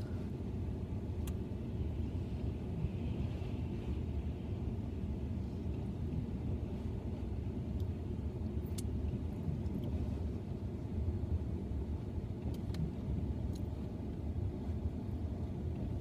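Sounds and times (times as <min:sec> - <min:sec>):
low rumble inside car: 0:00.0 - 0:16.0.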